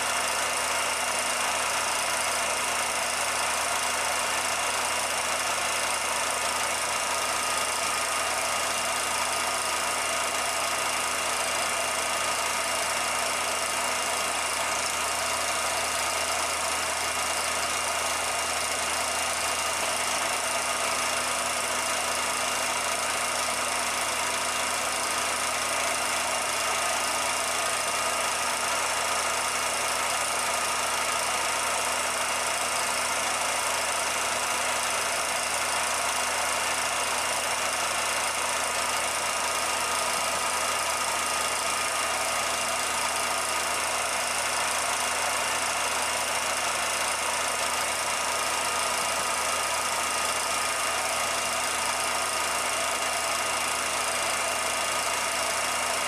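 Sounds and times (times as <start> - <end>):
film projector whirring: 0.0 - 56.0.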